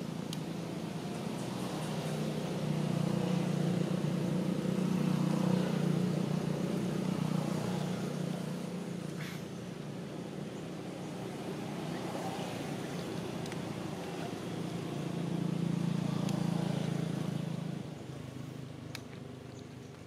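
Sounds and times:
vehicle engine drone: 0.0 - 20.0.

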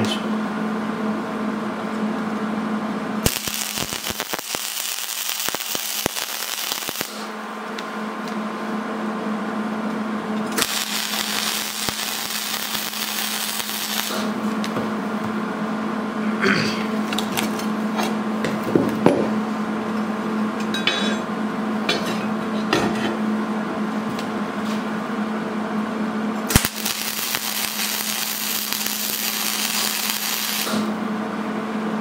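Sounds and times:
steady low hum: 0.0 - 32.0
welding arc crackling: 3.2 - 7.9, 10.5 - 14.8, 26.5 - 31.0.

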